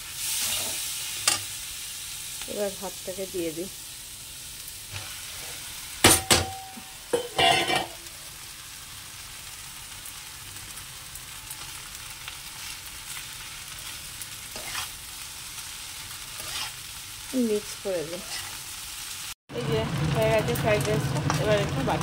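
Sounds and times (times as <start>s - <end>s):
pan sizzling: 0.0s - 22.0s
steel bowl knocking on pan: 6.0s - 8.0s
spatula scraping rice: 14.5s - 15.0s, 16.2s - 16.9s, 18.2s - 18.6s.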